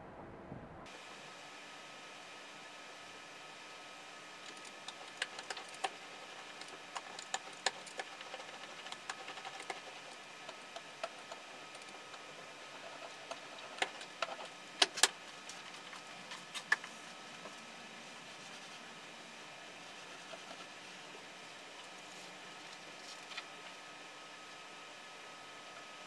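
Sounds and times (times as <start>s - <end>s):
brayer rolling ink crackling: 4.4s - 18.9s.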